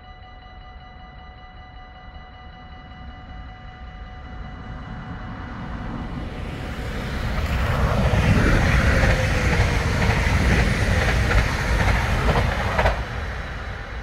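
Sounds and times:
falling whine: 0.0s - 14.0s
train wheels rushing on rail: 4.6s - 14.0s
wheels clacking over rail joints: 7.2s - 13.9s.

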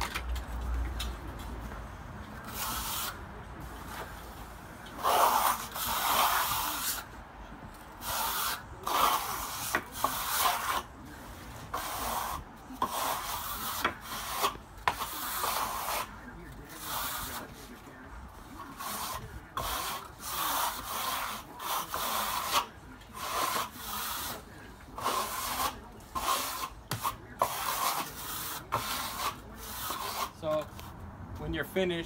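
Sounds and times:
trowel scraping plaster: 2.4s - 3.2s, 5.0s - 7.1s, 8.0s - 17.8s, 18.4s - 30.6s.

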